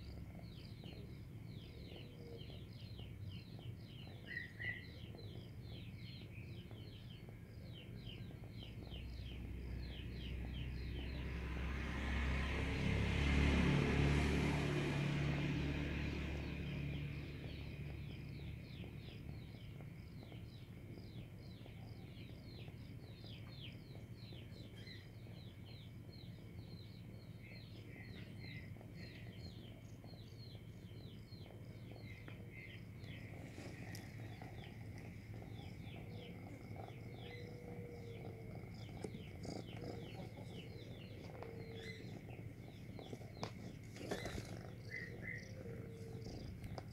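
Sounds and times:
birds chirping: 0:00.0 - 0:13.2, 0:13.9 - 0:46.9
vehicle passing: 0:09.2 - 0:18.8, 0:32.6 - 0:46.9.

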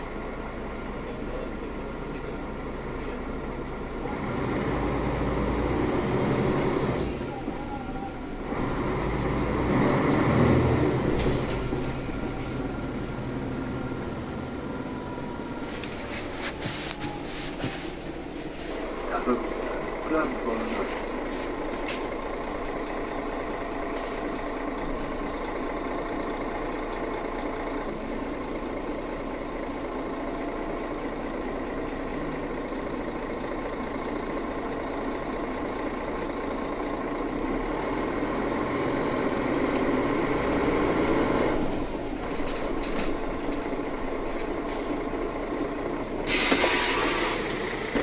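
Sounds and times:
bus engine: 0:00.0 - 0:48.0
compressed-air hiss: 0:46.3 - 0:47.8.

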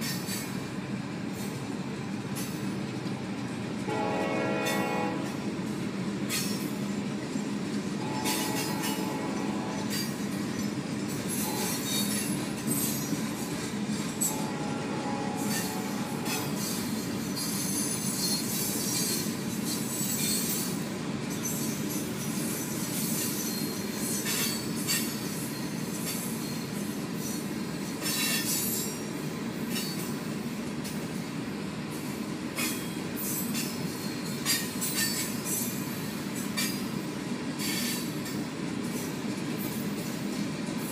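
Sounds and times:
train wheels rumbling on rails: 0:00.0 - 0:40.9
wheel clicks and metallic squeals: 0:07.4 - 0:14.5, 0:15.4 - 0:29.1, 0:32.6 - 0:36.9, 0:37.6 - 0:40.6.

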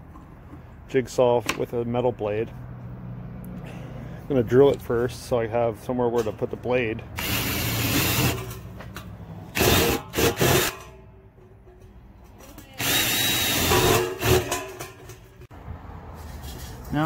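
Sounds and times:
cordless drill boring through steel: 0:07.2 - 0:08.4, 0:09.6 - 0:10.7, 0:12.8 - 0:14.5.

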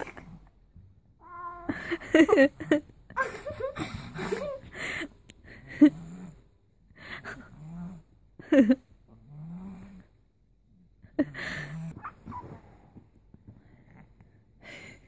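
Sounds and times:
cat crying sharply: 0:01.2 - 0:01.8.

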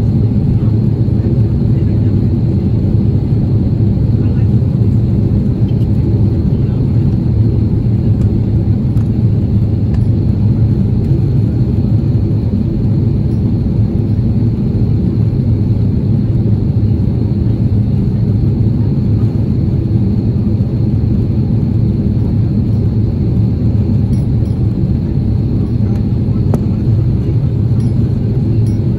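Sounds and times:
airliner cabin engine rumble: 0:00.0 - 0:28.9.

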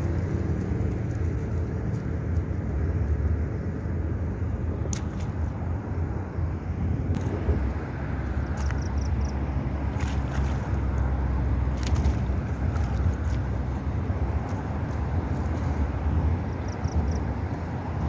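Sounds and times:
low outdoor rumble: 0:00.0 - 0:18.0
light water splash: 0:09.9 - 0:11.1, 0:11.7 - 0:13.8.

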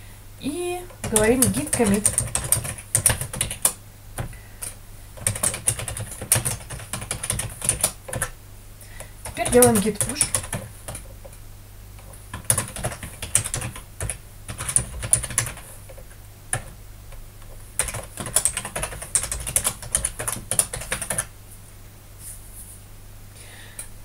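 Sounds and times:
typing on computer keyboard: 0:00.9 - 0:08.4, 0:09.2 - 0:11.4, 0:12.3 - 0:16.8, 0:17.8 - 0:21.3.

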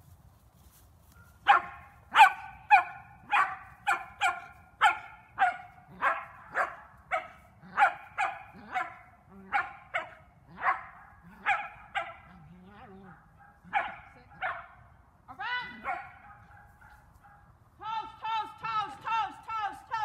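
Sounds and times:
dog barking: 0:01.2 - 0:12.4, 0:13.1 - 0:14.8, 0:15.8 - 0:17.5.

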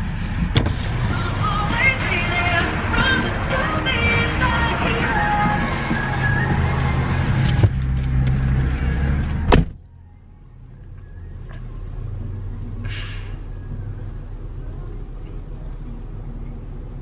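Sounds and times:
car engine idling: 0:00.0 - 0:17.0
car door slamming: 0:00.4 - 0:00.9, 0:09.3 - 0:09.8.

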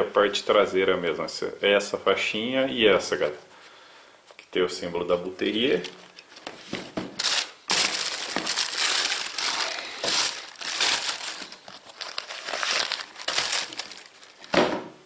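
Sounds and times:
tissue paper crinkling: 0:06.1 - 0:14.6.

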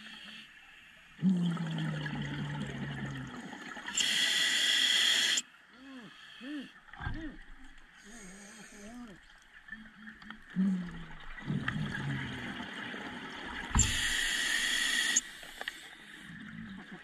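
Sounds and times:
exhaled bubbles underwater: 0:01.2 - 0:04.1, 0:06.8 - 0:15.2.

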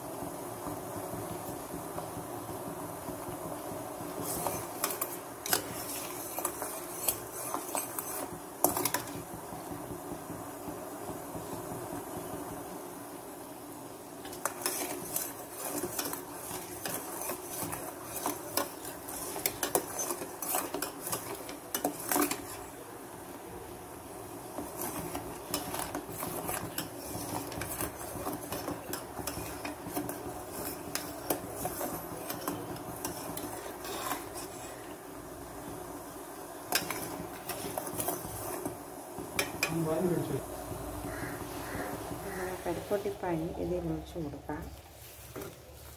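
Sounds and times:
metal spoon stirring in steel pan: 0:04.0 - 0:09.8, 0:14.2 - 0:22.9, 0:24.3 - 0:35.8, 0:36.5 - 0:40.4.

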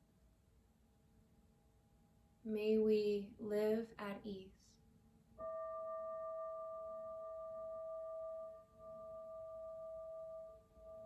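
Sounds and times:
singing bowl ringing: 0:05.4 - 0:11.0.

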